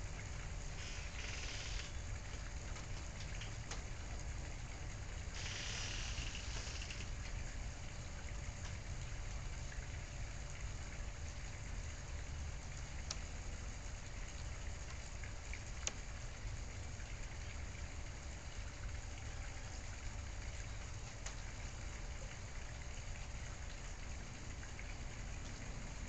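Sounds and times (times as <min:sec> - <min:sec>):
steady hiss: 0:00.0 - 0:08.1
faint steady hum: 0:00.0 - 0:26.0
faint ticks: 0:00.8 - 0:10.1, 0:11.2 - 0:24.1.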